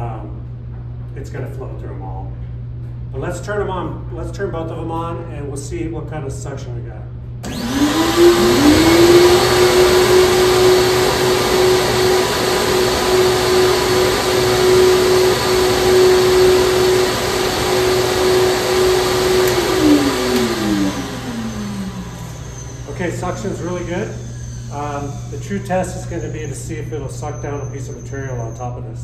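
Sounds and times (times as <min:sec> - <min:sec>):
vacuum motors whining: 0:07.4 - 0:28.6
rushing air: 0:07.5 - 0:25.4.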